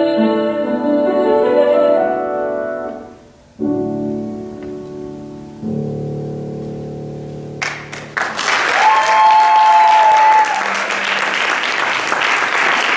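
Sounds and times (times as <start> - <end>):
grand piano chord ringing: 2.5 - 8.2
audience applause: 7.6 - 12.9
high cheer: 8.2 - 12.9.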